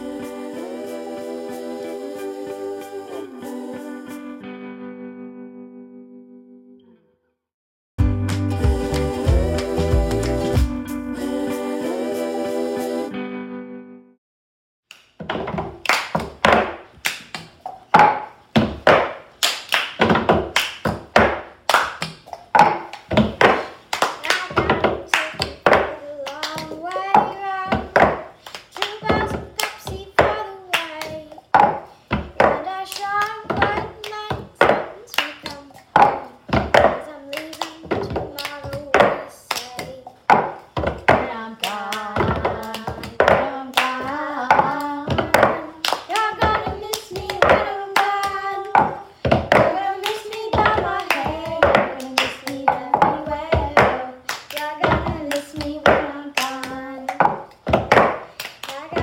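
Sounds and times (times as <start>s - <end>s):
children singing: 0.0s - 4.4s, 8.4s - 13.2s
hands clapping: 8.2s - 10.7s, 14.9s - 15.1s, 15.8s - 18.2s, 18.9s - 31.3s, 32.5s - 36.3s, 37.0s - 40.6s, 41.2s - 59.0s
plastic cups knocking on table: 15.2s - 19.3s, 19.9s - 26.0s, 26.6s - 28.4s, 31.5s - 32.6s, 33.4s - 37.0s, 37.8s - 39.2s, 40.1s - 54.1s, 54.8s - 59.0s.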